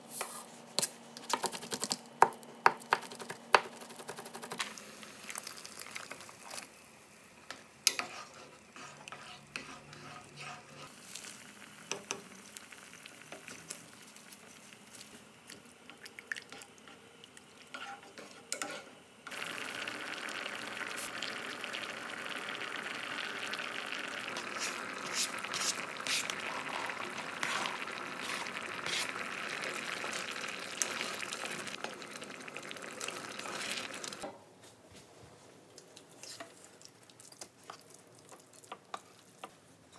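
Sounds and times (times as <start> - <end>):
porridge boiling and bubbling: 4.2 - 34.4, 35.8 - 39.9
wooden spoon stirring in saucepan: 7.8 - 12.5, 13.2 - 18.9, 24.1 - 32.0.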